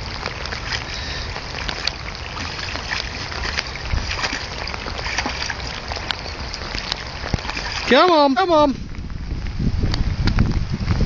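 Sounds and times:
dog splashing in water: 0:00.0 - 0:08.4.

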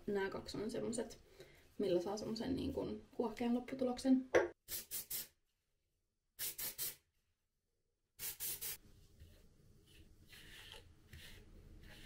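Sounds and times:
hair spray hissing puffs: 0:06.4 - 0:07.0, 0:08.2 - 0:08.8.

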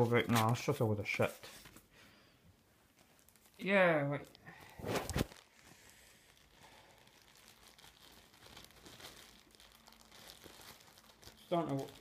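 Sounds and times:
packaging rustling and crinkling: 0:02.9 - 0:12.0.

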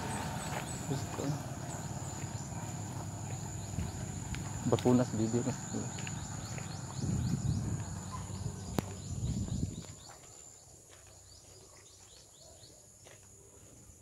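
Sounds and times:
insect drone: 0:00.0 - 0:09.8
small birds chirping: 0:00.0 - 0:14.0
low rumble on microphone: 0:05.6 - 0:10.0.

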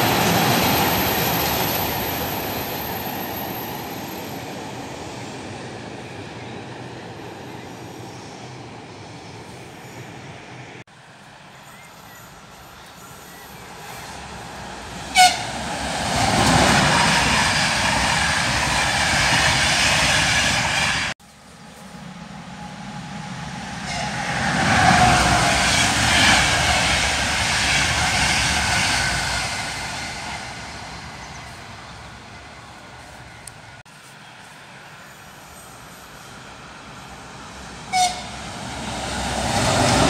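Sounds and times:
electric train passing: 0:00.0 - 0:40.0
train horn toot: 0:15.1 - 0:15.6, 0:23.8 - 0:25.5, 0:37.9 - 0:38.4.

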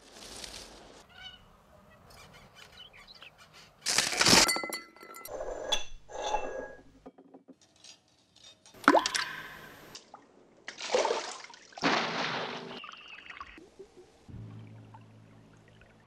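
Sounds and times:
soft rustle: 0:00.0 - 0:01.1
glass clinking: 0:04.4 - 0:06.9.

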